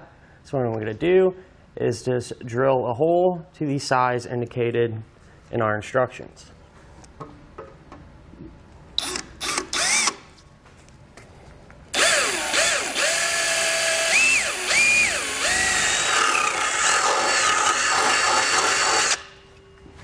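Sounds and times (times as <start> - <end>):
power drill drilling metal: 9.0 - 10.2, 12.0 - 19.3.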